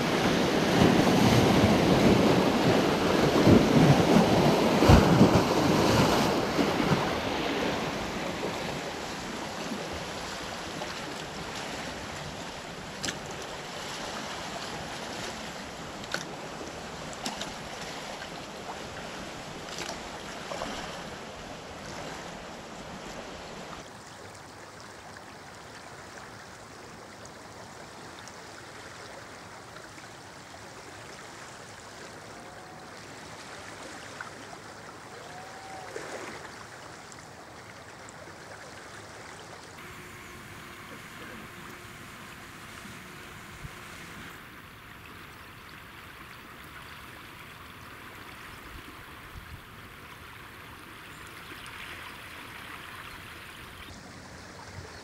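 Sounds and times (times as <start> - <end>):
river water surging against bank: 0.0 - 55.0
steady rush of tidal flow: 0.0 - 55.0.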